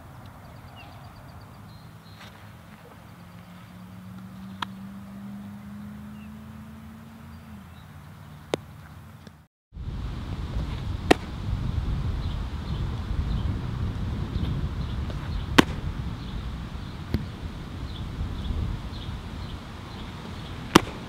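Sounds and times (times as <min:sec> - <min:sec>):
steady outdoor noise: 0:00.0 - 0:21.0
baseball smacking into glove: 0:11.1 - 0:11.3, 0:15.1 - 0:15.9, 0:20.7 - 0:21.0.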